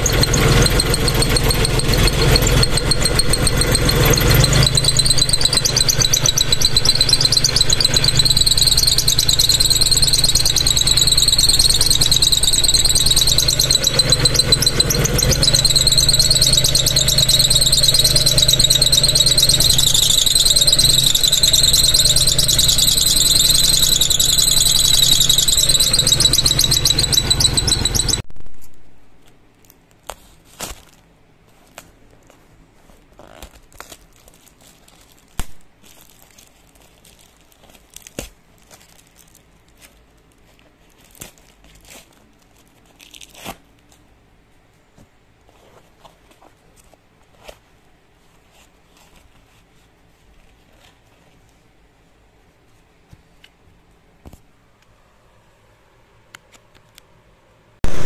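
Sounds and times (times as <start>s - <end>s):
car engine running: 0.0s - 28.2s
high-pitched squeal: 0.0s - 28.3s.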